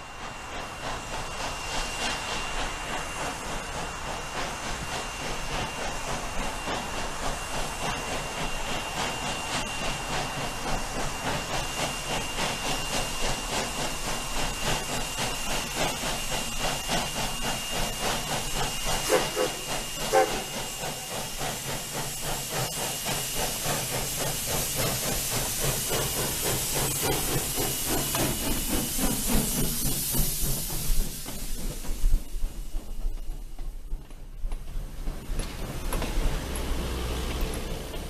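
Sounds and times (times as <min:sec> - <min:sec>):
hissing steam: 0:00.0 - 0:38.0
steam locomotive exhaust chuffs: 0:00.0 - 0:38.0.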